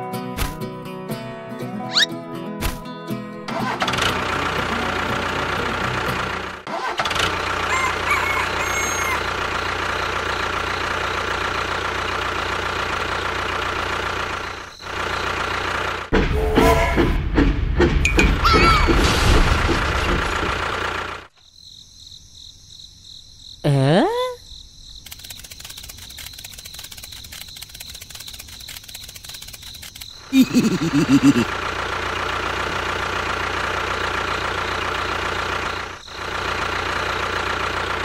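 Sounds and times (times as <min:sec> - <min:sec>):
tractor engine running: 0:03.4 - 0:21.4, 0:25.0 - 0:38.0
insects chirring: 0:14.2 - 0:15.4, 0:21.3 - 0:31.5, 0:34.6 - 0:37.4.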